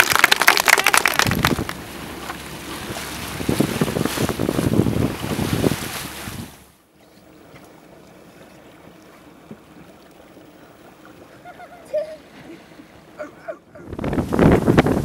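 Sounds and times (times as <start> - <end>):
water rushing past hull: 0.0 - 15.0
wind buffeting microphone: 1.2 - 6.7, 13.8 - 15.0.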